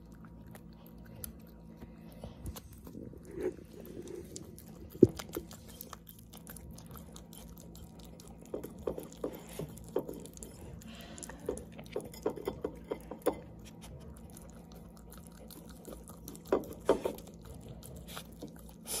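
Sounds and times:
dog licking a plate: 0:03.5 - 0:19.0.

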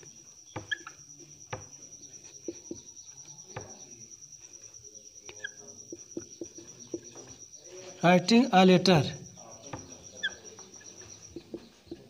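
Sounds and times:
marker scratching on whiteboard: 0:02.1 - 0:02.9.

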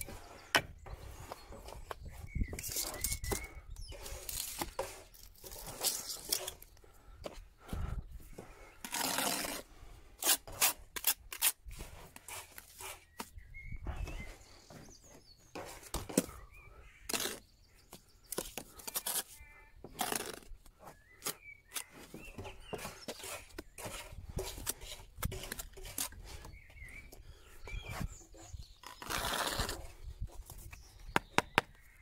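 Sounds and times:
faint birds chirping: 0:00.0 - 0:10.2, 0:12.0 - 0:32.0
trowel scraping on stone: 0:02.5 - 0:06.7, 0:08.8 - 0:13.3, 0:17.1 - 0:17.5, 0:18.6 - 0:21.0, 0:21.7 - 0:26.5, 0:27.9 - 0:30.6.

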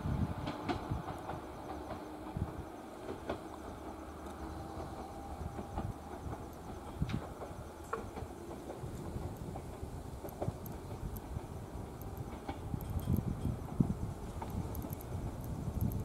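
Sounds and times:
electric train rumbling: 0:00.0 - 0:16.0
sharp clicks: 0:11.9 - 0:13.3, 0:14.4 - 0:16.0.

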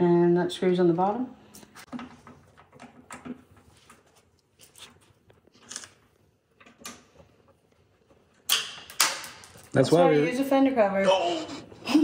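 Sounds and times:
plastic parts clicking and clunking: 0:01.9 - 0:04.0.

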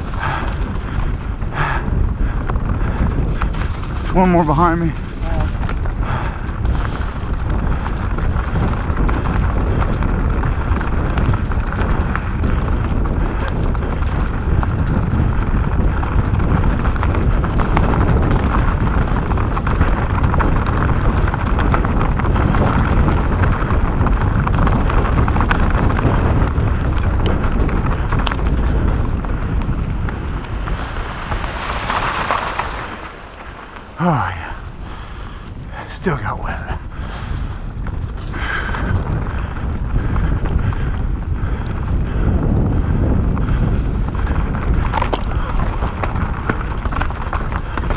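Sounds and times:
bike rattling: 0:00.0 - 0:47.9
bike tyres crackling over leaves: 0:00.0 - 0:47.9
wind buffeting microphone: 0:00.0 - 0:47.9.

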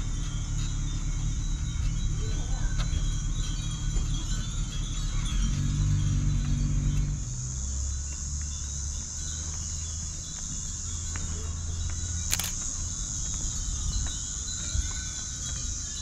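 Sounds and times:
high-pitched insect chorus: 0:00.0 - 0:16.0
low hum: 0:00.0 - 0:16.0
sharp click: 0:12.3 - 0:12.6.

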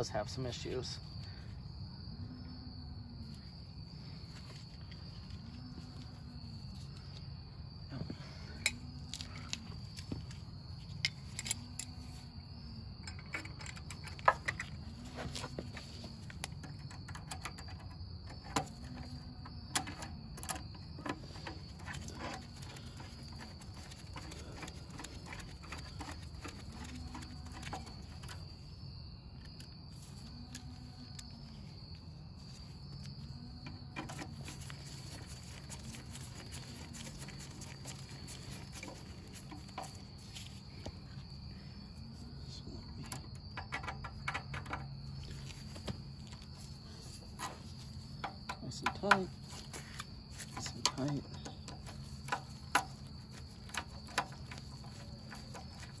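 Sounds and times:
insect chorus: 0:00.0 - 0:56.0
metal tools clinking: 0:13.0 - 0:15.6.

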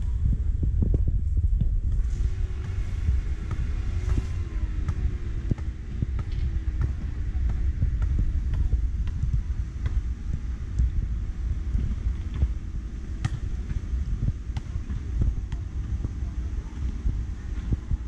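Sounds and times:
road traffic rumble: 0:00.0 - 0:18.0
vehicle engine: 0:01.9 - 0:15.4.

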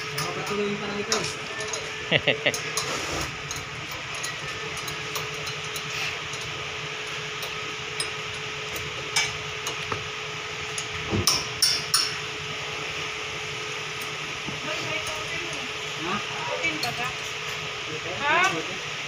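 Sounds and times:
hand tools clinking on metal: 0:00.0 - 0:09.9, 0:10.6 - 0:12.2, 0:16.6 - 0:17.7
shop hum: 0:00.0 - 0:19.0.

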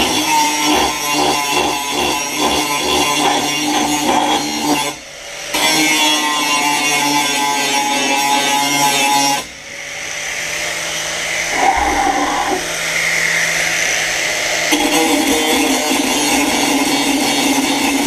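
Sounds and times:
angle grinder grinding steel: 0:11.2 - 0:18.0.

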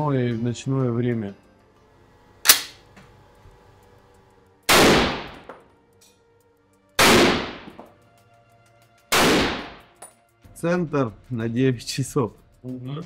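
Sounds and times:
rifle shots with echo: 0:04.7 - 0:05.5, 0:07.0 - 0:07.8, 0:09.1 - 0:09.8.

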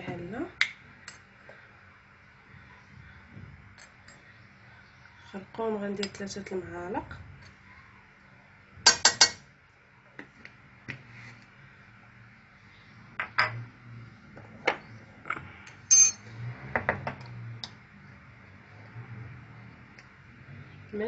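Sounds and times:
metal spoon clinking on steel pot: 0:08.9 - 0:09.4.

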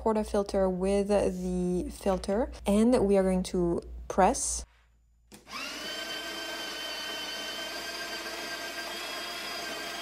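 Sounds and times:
coffee grinder whine: 0:05.4 - 0:10.0.

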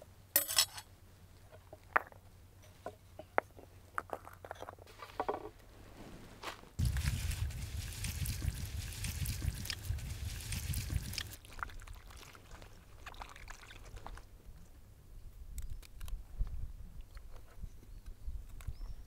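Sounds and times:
hand rubbing greens: 0:06.8 - 0:11.4
water dripping: 0:06.8 - 0:14.2
water pouring and splashing: 0:06.8 - 0:14.3.

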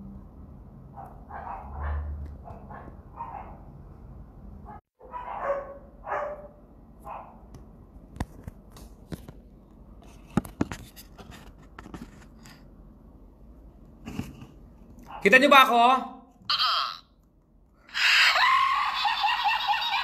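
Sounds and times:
dog barking: 0:01.0 - 0:03.7, 0:04.7 - 0:07.4.

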